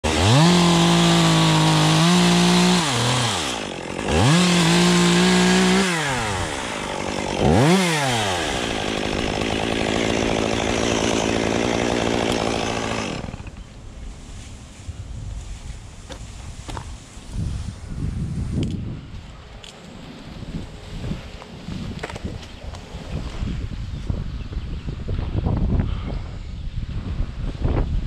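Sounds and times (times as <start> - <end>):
chainsaw revving and idling: 0.0 - 13.7.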